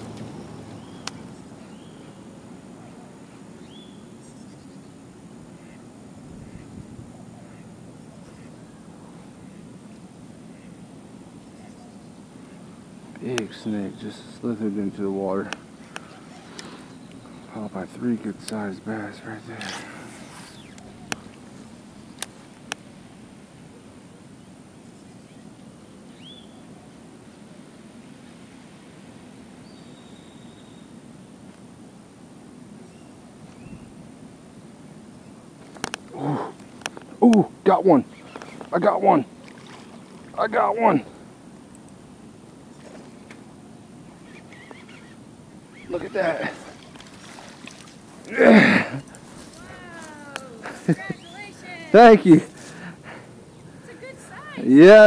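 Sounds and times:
bird chirp: 0:00.0 - 0:05.0, 0:11.4 - 0:12.7, 0:15.9 - 0:18.7, 0:20.2 - 0:22.4, 0:23.8 - 0:27.0, 0:29.6 - 0:31.0, 0:32.8 - 0:34.0, 0:38.0 - 0:38.8, 0:44.0 - 0:46.2, 0:50.3 - 0:51.8
low steady rumble: 0:00.0 - 0:16.3
small birds chirping: 0:00.0 - 0:23.0, 0:23.6 - 0:27.5, 0:29.6 - 0:31.5, 0:32.7 - 0:34.1, 0:34.8 - 0:55.0.

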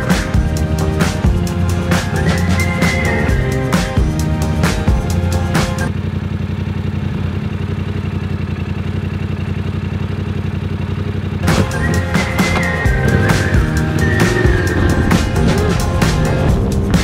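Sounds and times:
music with drums: 0:00.0 - 0:05.9, 0:11.4 - 0:17.0
motorcycle engine idling: 0:00.0 - 0:17.0.

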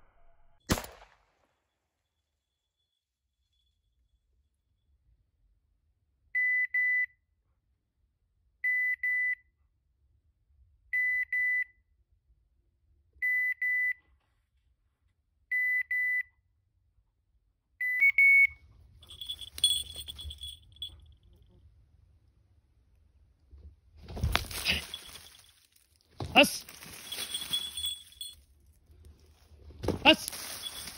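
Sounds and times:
rustling: 0:19.1 - 0:20.9, 0:24.0 - 0:28.4, 0:29.0 - 0:30.9.

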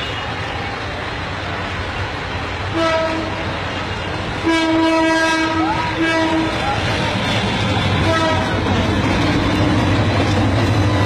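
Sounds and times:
train rumbling: 0:00.0 - 0:11.0
locomotive horn blasts: 0:02.7 - 0:06.6, 0:08.0 - 0:08.6.

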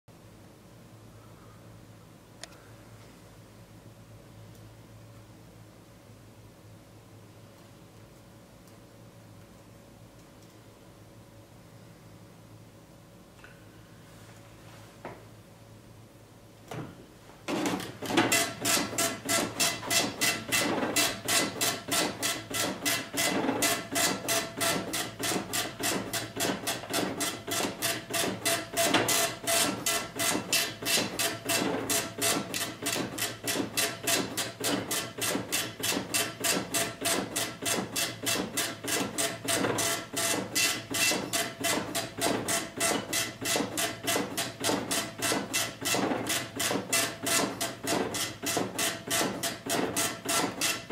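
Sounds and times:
dot matrix printer printing: 0:17.5 - 0:50.9.

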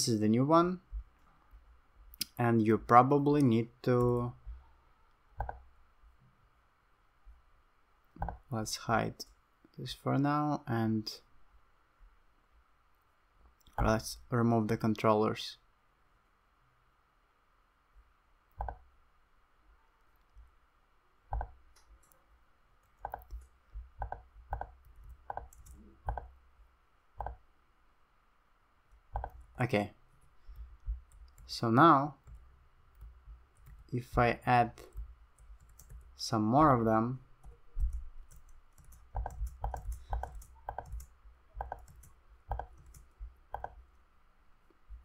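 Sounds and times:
faint low hum: 0:00.0 - 0:45.0
computer mouse clicking: 0:05.4 - 0:05.7, 0:08.2 - 0:08.5, 0:18.6 - 0:18.9, 0:21.3 - 0:22.2, 0:22.8 - 0:26.4, 0:27.2 - 0:27.4, 0:28.9 - 0:29.6, 0:30.6 - 0:31.5, 0:34.9 - 0:36.1, 0:37.4 - 0:44.0.

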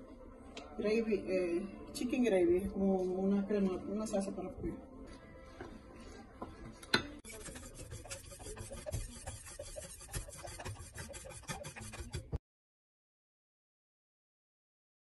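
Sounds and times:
whisk scraping a metal saucepan: 0:07.2 - 0:12.4.

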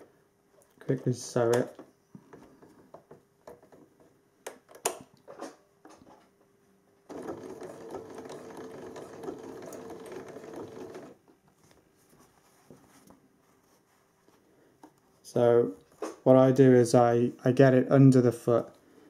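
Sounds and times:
sewing machine stitching: 0:07.1 - 0:11.2.

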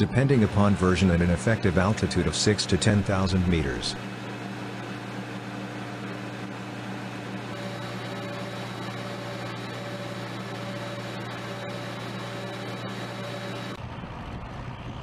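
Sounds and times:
machinery hum with high whine: 0:00.0 - 0:15.0.

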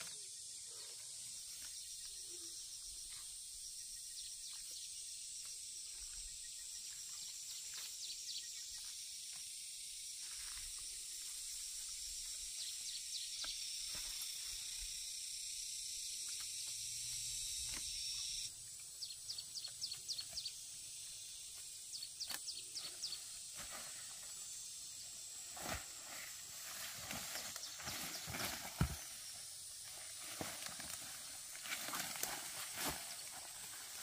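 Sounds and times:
high-pitched insect drone: 0:00.0 - 0:34.0
bird chirping: 0:16.2 - 0:23.4
plant stalks snapping and rustling: 0:21.6 - 0:22.5, 0:30.1 - 0:34.0.

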